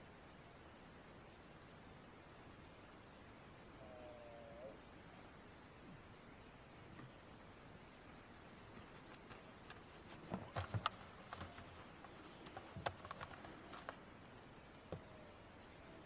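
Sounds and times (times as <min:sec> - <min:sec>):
insects trilling: 0:00.0 - 0:16.0
sharp knocks and clicks: 0:09.1 - 0:14.0.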